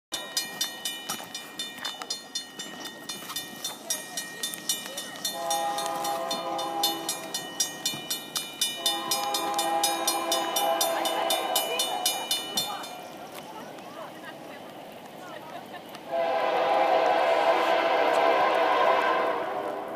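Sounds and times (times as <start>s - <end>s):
crossing bell dinging: 0.1s - 14.7s
locomotive air horn: 5.3s - 7.3s, 8.8s - 11.8s, 16.1s - 19.9s.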